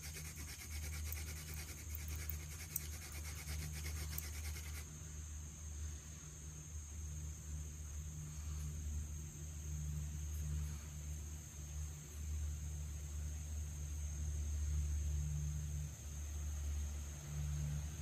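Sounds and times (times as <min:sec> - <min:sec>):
hand drill rasping on wood: 0:00.0 - 0:04.8
high insect drone: 0:00.0 - 0:18.0.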